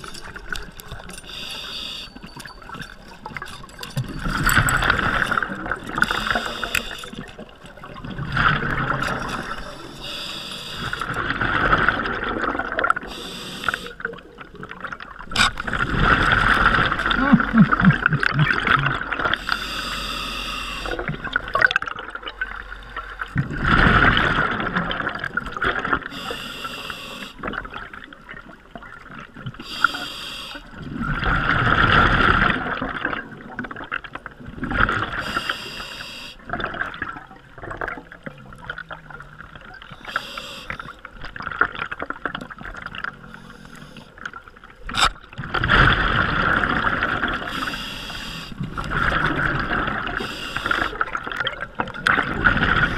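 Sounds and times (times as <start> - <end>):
diver breathing through regulator: 1.2 - 2.3, 6.0 - 7.2, 9.5 - 11.1, 13.0 - 14.0, 19.4 - 21.1, 26.1 - 27.4, 29.6 - 30.7, 35.2 - 36.4, 40.0 - 41.0, 47.5 - 48.6, 50.1 - 51.1
exhaled bubbles rushing: 2.3 - 9.7, 11.0 - 13.1, 14.0 - 19.4, 23.2 - 26.1, 30.8 - 35.2, 45.4 - 47.5, 48.6 - 52.9.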